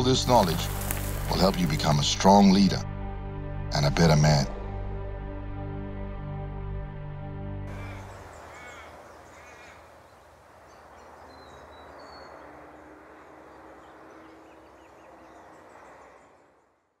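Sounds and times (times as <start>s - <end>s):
steady hiss: 0.0s - 1.9s
bird chirps and calls: 7.7s - 16.4s.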